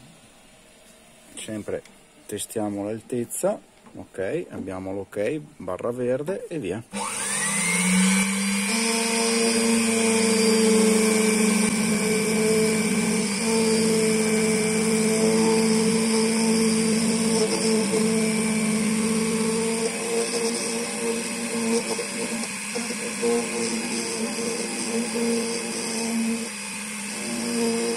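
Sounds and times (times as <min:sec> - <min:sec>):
key-cutting machine whining: 0:07.0 - 0:27.9.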